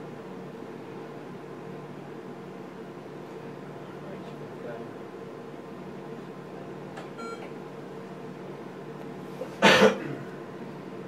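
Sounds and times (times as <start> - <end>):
ultrasound scanner humming: 5.0 - 11.0.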